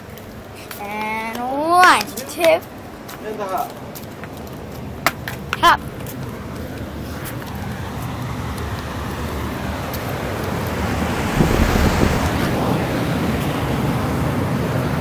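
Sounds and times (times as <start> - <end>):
low rumbling bumps: 9.9 - 13.1.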